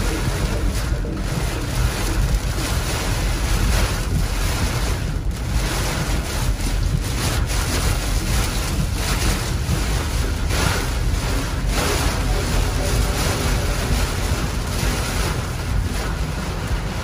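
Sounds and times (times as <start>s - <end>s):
rain and wind buffeting a car: 0.0s - 17.0s.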